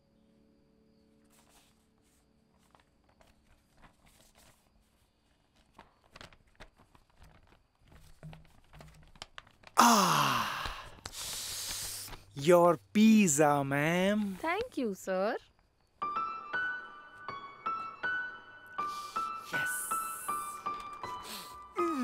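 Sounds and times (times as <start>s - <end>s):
paper bag rustling: 1.3s - 9.8s
man saying ooh: 9.8s - 10.8s, 19.5s - 20.6s
long exhale: 9.8s - 12.2s.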